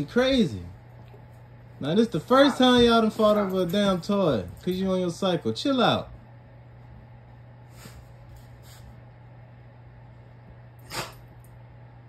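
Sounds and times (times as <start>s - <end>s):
steady low hum: 0.0s - 12.0s
dog huffing: 10.8s - 11.3s.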